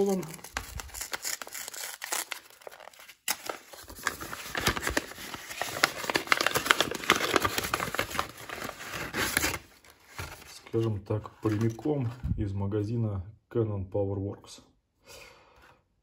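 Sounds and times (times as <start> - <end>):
paper crinkling and crumpling: 0.0 - 11.9.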